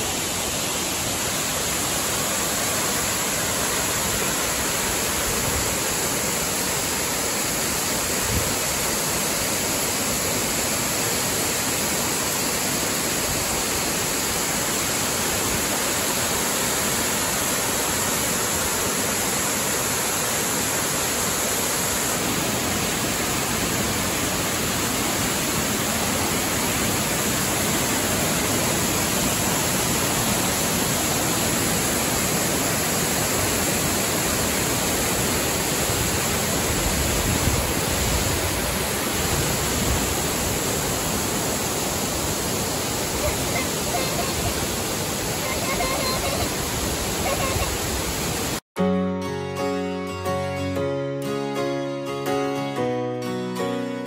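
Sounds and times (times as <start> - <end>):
waterfall rushing: 0.0 - 48.6.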